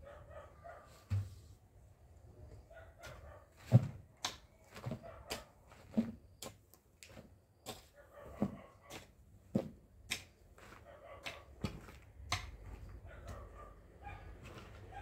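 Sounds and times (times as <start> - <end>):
digging tool scraping soil: 3.0 - 12.9.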